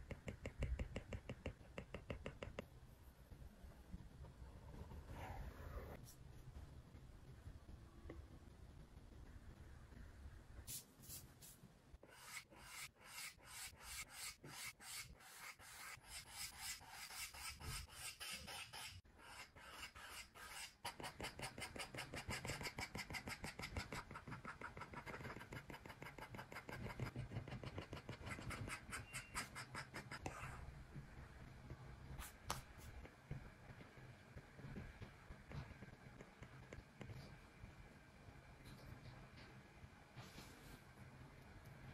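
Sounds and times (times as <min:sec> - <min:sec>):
stylus scratching on tablet screen: 0:00.1 - 0:02.6, 0:12.0 - 0:30.7.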